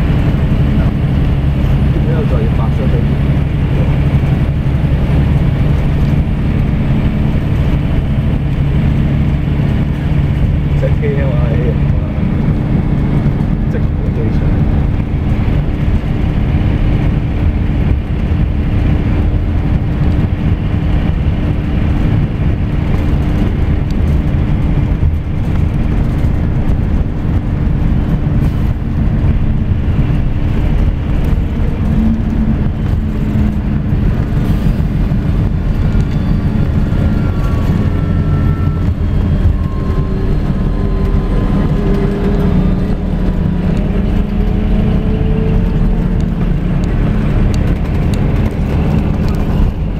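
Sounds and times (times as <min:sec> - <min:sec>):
bus engine drone: 0:00.0 - 0:49.9
road noise: 0:00.0 - 0:49.9
faint rising whine: 0:35.4 - 0:45.3.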